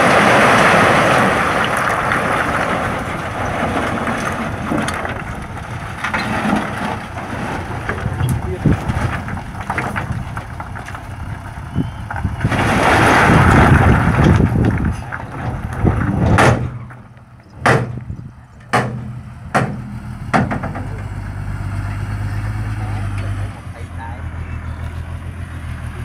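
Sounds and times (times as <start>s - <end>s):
stones sliding rumble: 0.0s - 18.2s
truck bed banging: 0.0s - 21.4s
truck engine hum: 0.0s - 26.0s.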